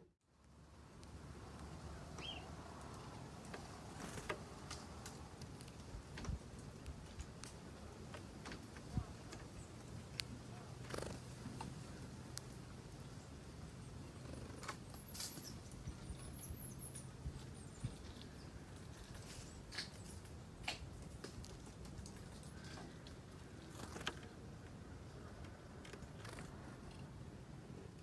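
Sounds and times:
faint high bird call: 2.2s - 2.5s.

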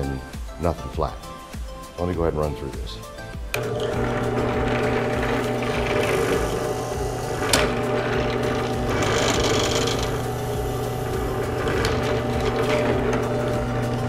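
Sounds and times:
drill press motor humming: 3.5s - 14.0s
drill bit cutting hiss: 3.6s - 14.0s.

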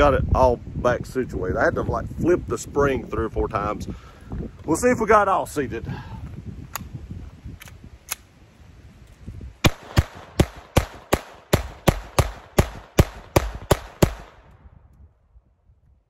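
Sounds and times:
pistol shots: 9.6s - 14.5s.

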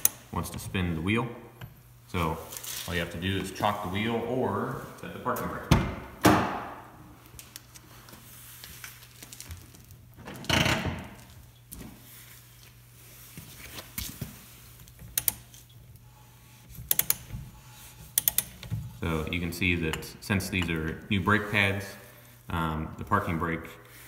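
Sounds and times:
steady low hum: 0.0s - 24.0s
torque wrench clicks: 16.9s - 17.2s, 18.2s - 18.5s.

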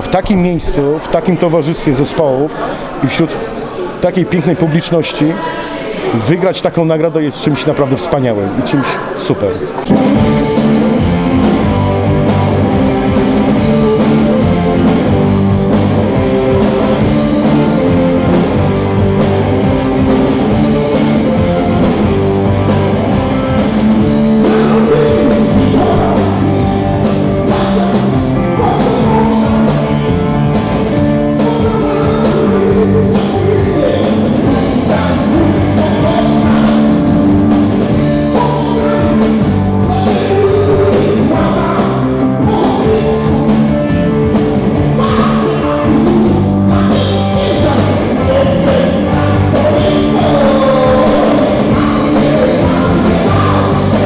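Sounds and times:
electric guitars: 9.7s - 54.0s
drums: 9.8s - 54.0s
man singing: 13.4s - 15.0s, 20.3s - 22.2s, 24.1s - 30.1s, 31.0s - 43.9s, 44.8s - 54.0s.

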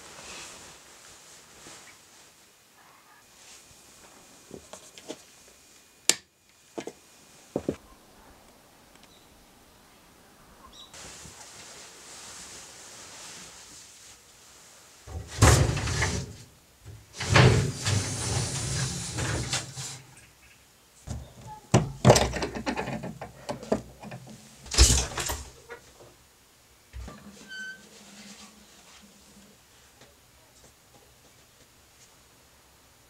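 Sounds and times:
paper window rustling and rattling: 15.1s - 20.1s, 21.1s - 25.8s.

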